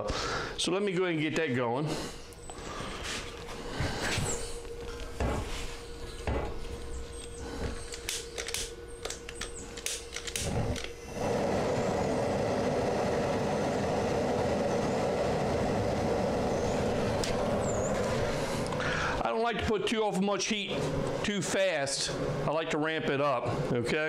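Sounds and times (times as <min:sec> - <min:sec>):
gas burner rushing: 0:09.5 - 0:22.5.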